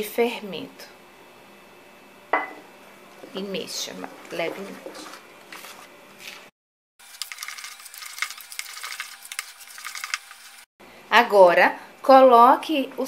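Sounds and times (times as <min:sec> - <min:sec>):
spoon scraping a bowl: 0:07.0 - 0:10.7.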